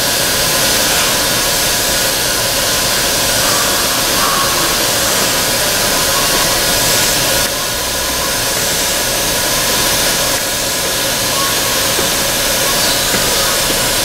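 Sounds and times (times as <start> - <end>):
blower fan hiss: 0.0 - 14.0.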